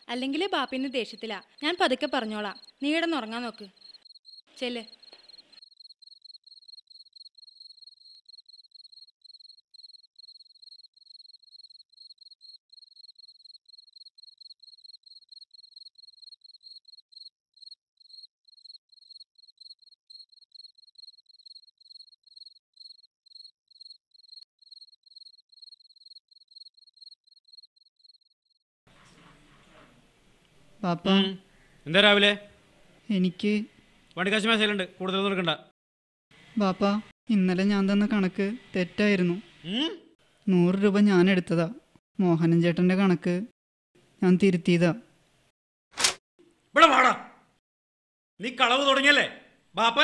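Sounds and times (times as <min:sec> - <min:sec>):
cricket chirping: 0:00.3 - 0:28.6.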